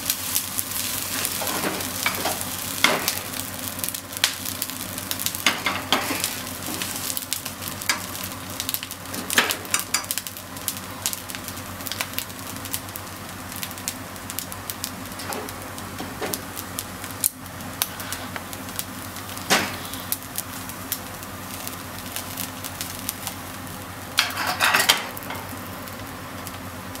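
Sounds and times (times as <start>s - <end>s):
rice sizzling in a frying pan: 0.0s - 27.0s
wooden utensil scraping a pan: 24.2s - 25.0s.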